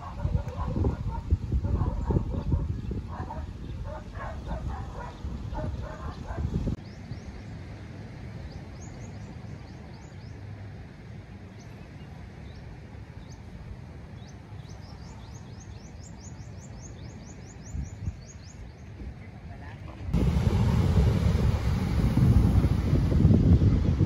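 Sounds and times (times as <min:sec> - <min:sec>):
low outdoor rumble: 0:18.0 - 0:24.0.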